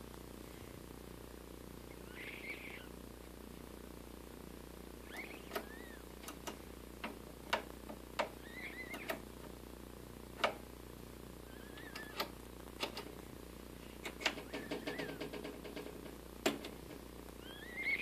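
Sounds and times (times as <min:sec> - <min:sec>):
small bird chirping: 0:01.9 - 0:03.0, 0:05.0 - 0:06.1, 0:08.4 - 0:09.2, 0:11.4 - 0:12.2, 0:17.4 - 0:18.0.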